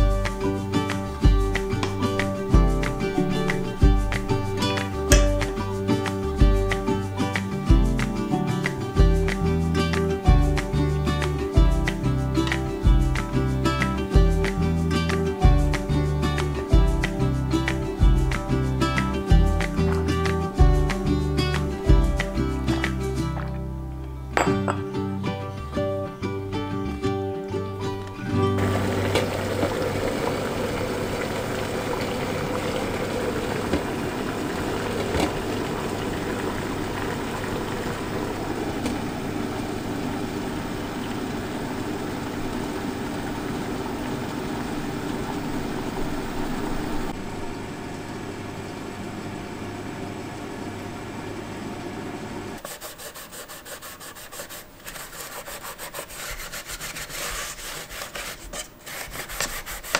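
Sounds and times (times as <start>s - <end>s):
water boiling with hiss: 0.0s - 20.1s, 28.6s - 52.7s
low hum: 28.6s - 52.6s
cloth rubbing bamboo: 52.6s - 59.9s.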